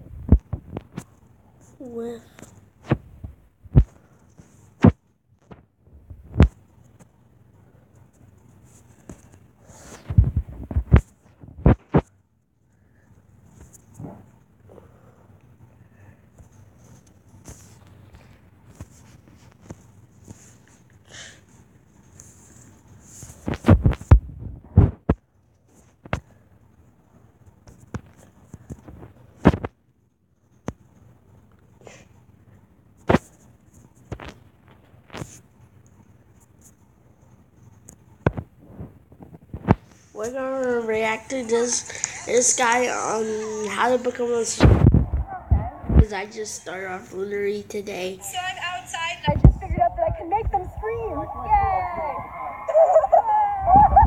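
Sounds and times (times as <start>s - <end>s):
fingertips tapping touchscreen: 40.4s - 46.1s.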